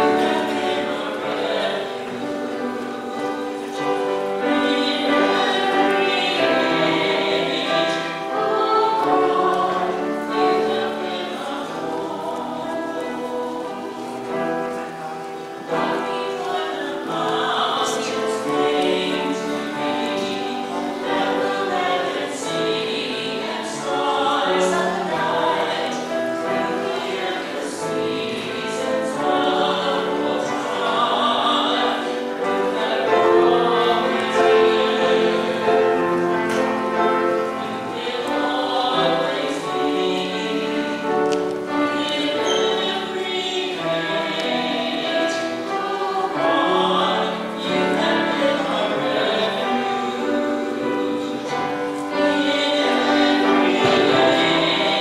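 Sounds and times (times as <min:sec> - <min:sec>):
choir singing a hymn: 0:00.0 - 0:55.0.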